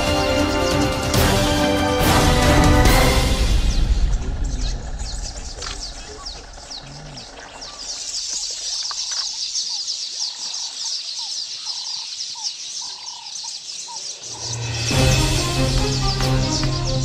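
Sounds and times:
birds chirping: 0.0 - 17.0
whistled bird calls: 3.6 - 14.8.

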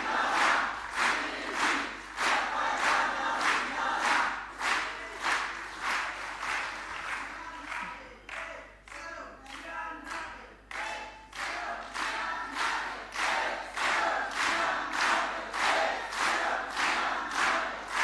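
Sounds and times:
crowd singing a call: 0.0 - 5.2, 11.4 - 18.0
crowd chanting in unison: 0.0 - 5.5, 11.4 - 18.0.

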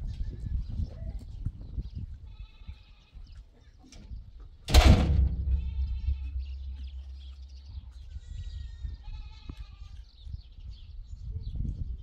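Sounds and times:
livestock bleating: 2.3 - 3.2, 8.1 - 10.0.

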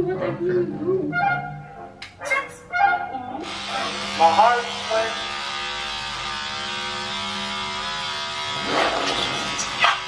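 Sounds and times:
electric hair clippers buzzing: 3.4 - 10.0.

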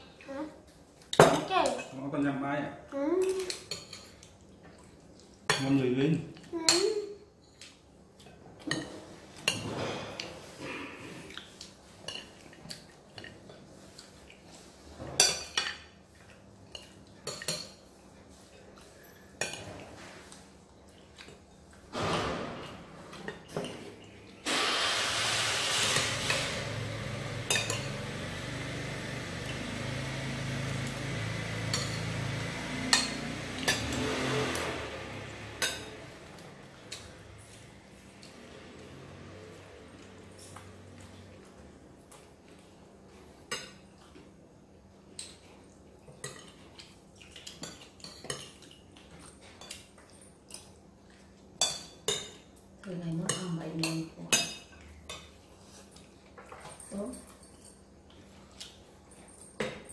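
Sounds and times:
spoons clinking on plates: 27.4 - 28.0, 31.6 - 34.1.

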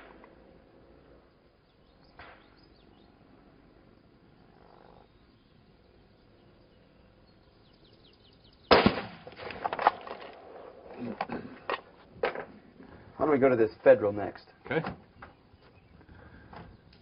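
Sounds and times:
rifle shot: 8.7 - 10.1.

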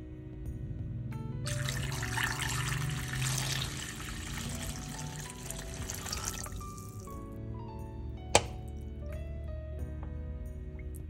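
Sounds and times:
water pouring into a pan: 1.5 - 7.2.

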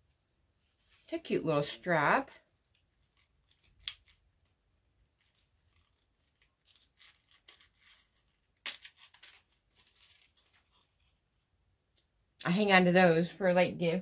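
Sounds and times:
package handling clicks and crinkles: 2.7 - 11.0.

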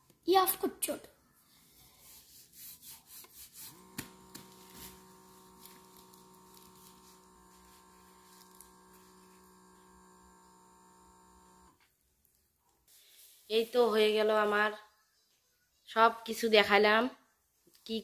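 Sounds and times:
air pump humming: 3.6 - 11.8.

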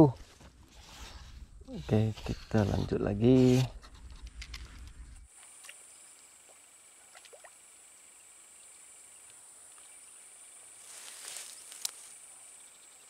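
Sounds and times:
brief rustle: 10.9 - 12.2.

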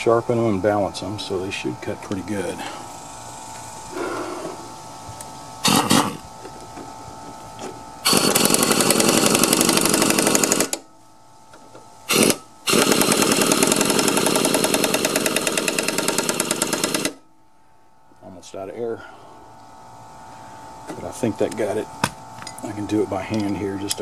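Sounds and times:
impact wrench hammering: 8.0 - 10.8, 12.1 - 17.2.

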